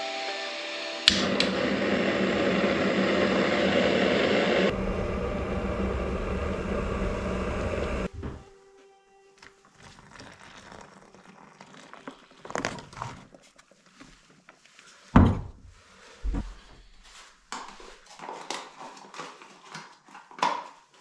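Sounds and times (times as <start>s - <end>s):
knocks and thuds in a room: 15.2s - 16.6s.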